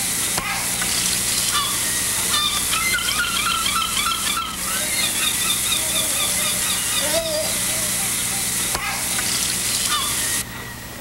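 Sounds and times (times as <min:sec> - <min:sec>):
short bird calls: 0:09.8 - 0:10.4.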